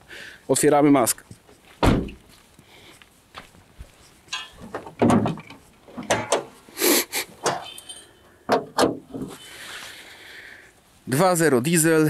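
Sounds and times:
car bonnet latch clunks: 0:04.7 - 0:06.5, 0:08.5 - 0:09.3.

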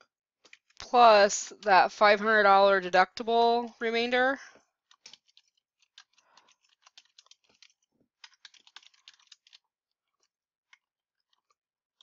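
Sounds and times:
keyboard typing: 0:04.9 - 0:09.6.

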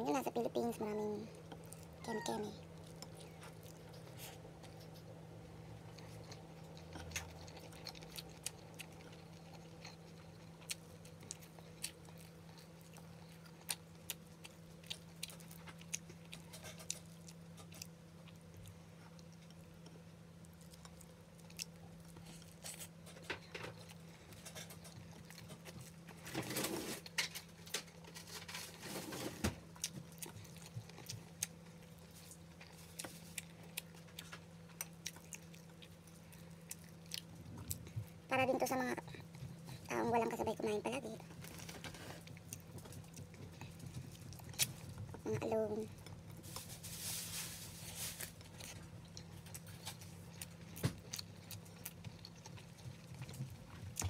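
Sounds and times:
chewing with clicks and smacks: 0:00.0 - 0:46.7, 0:48.2 - 0:54.0
steady low hum: 0:00.0 - 0:54.0
rustling: 0:46.4 - 0:48.8.

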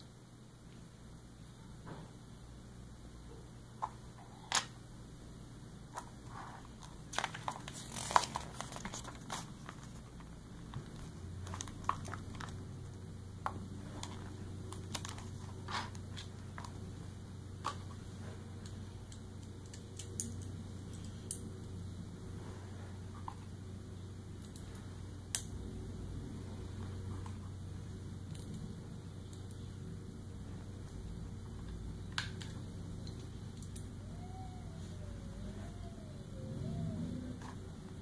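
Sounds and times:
low steady hum: 0:00.0 - 0:38.0
paper booklet rustling: 0:06.0 - 0:12.8, 0:13.8 - 0:16.8.

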